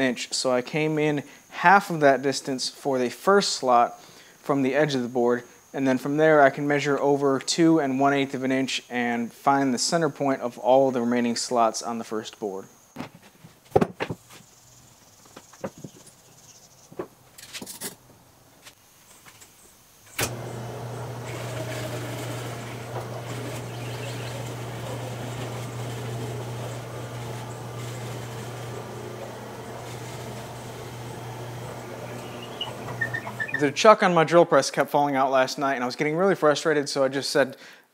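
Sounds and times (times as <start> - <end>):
plywood boards knocking: 13.0 - 14.2
drill press humming: 20.1 - 33.8.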